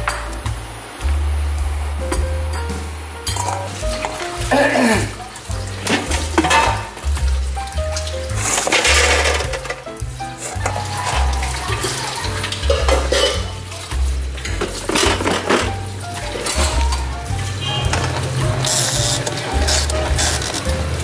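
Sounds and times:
background music with bass line: 0.0s - 21.0s
chestnuts clattering in metal basket: 3.3s - 7.4s, 8.3s - 9.8s, 10.4s - 21.0s.

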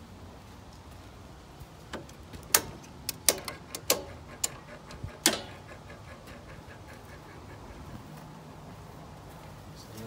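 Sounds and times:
circuit breakers clicking: 1.9s - 6.4s.

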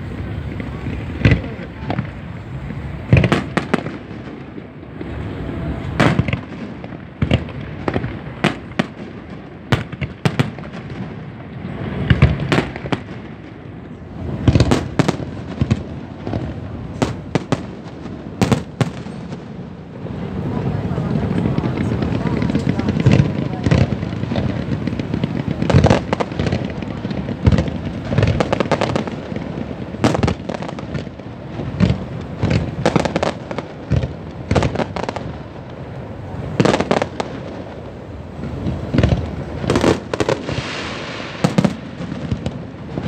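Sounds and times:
firework shells bursting: 5.9s - 11.2s, 21.2s - 35.4s, 38.4s - 43.0s.

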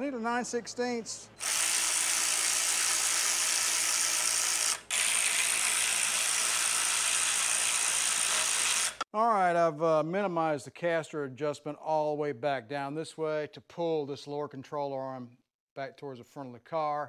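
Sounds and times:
power wrench whirring: 1.4s - 9.0s.

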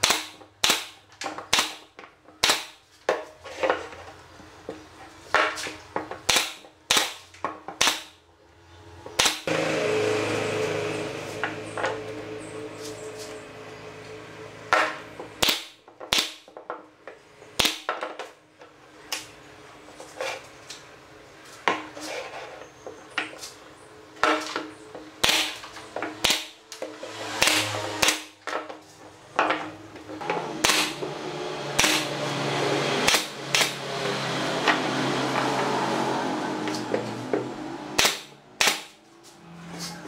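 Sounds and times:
nail gun firing into wood: 0.0s - 2.8s, 6.2s - 8.2s, 9.2s - 9.6s, 14.7s - 16.6s, 17.6s - 18.2s, 24.2s - 26.6s, 27.3s - 28.6s, 30.6s - 31.1s, 31.7s - 32.2s, 33.0s - 33.8s, 38.0s - 39.0s.

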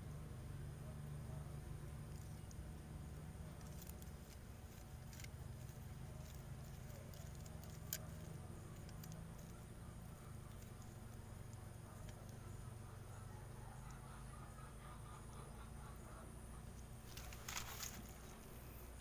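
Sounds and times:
low steady hum: 0.0s - 19.0s
garden shears clicking: 2.1s - 14.0s, 16.8s - 19.0s.

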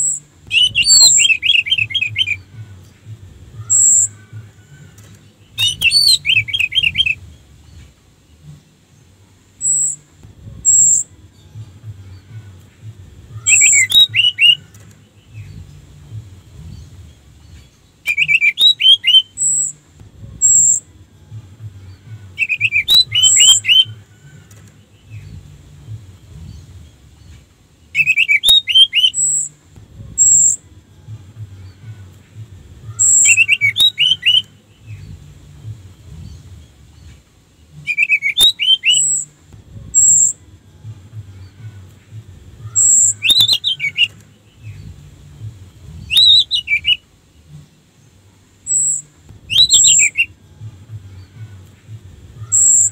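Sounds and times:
very high bird notes: 0.0s - 15.9s, 16.6s - 25.6s, 27.2s - 35.3s, 36.2s - 45.2s, 48.6s - 52.9s
thrush singing warbled phrases: 0.5s - 7.2s.

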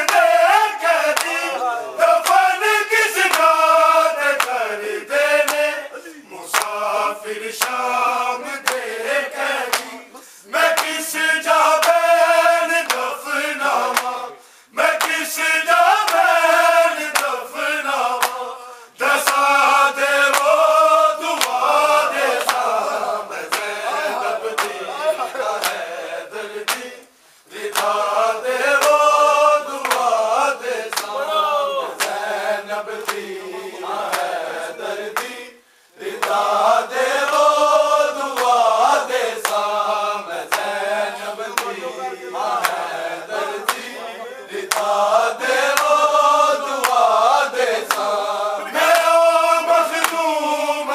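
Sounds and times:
men chanting together: 0.0s - 50.9s
chest-beating slaps: 4.4s - 4.6s, 5.4s - 5.7s, 6.5s - 6.8s, 8.6s - 8.9s, 27.7s - 28.0s, 29.8s - 30.1s, 41.5s - 41.8s, 44.7s - 45.0s.

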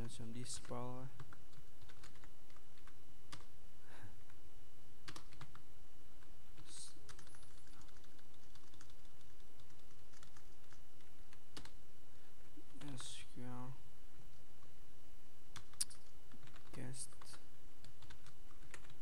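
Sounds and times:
keyboard typing: 0.3s - 3.5s, 5.0s - 5.6s, 6.2s - 11.8s, 15.5s - 19.0s.

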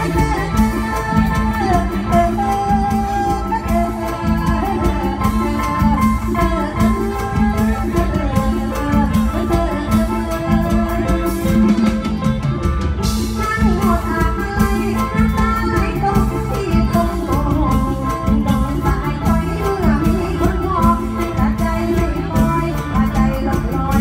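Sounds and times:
woman singing into microphone: 0.0s - 12.3s, 13.0s - 24.0s
live band music with beat: 0.0s - 24.0s.

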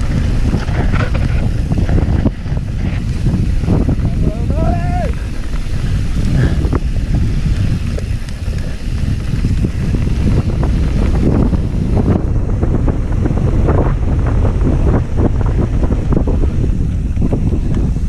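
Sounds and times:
bike rattling over bumps: 0.0s - 18.0s
wind buffeting microphone: 0.0s - 18.0s
tyres crunching over gravel: 5.0s - 12.0s.

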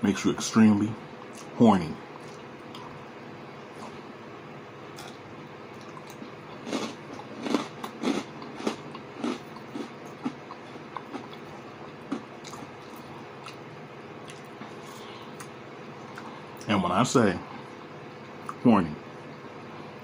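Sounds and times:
man chewing and lip-smacking: 2.2s - 3.0s, 4.9s - 13.6s, 14.2s - 16.7s.

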